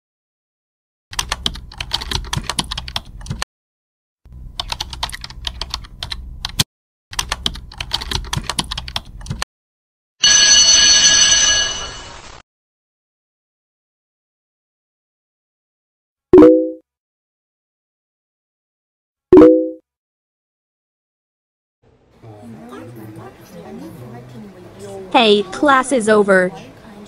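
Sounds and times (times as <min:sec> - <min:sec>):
keyboard typing clicks: 0:01.1 - 0:03.4, 0:07.2 - 0:09.4
loud bell ringing: 0:10.2 - 0:12.3.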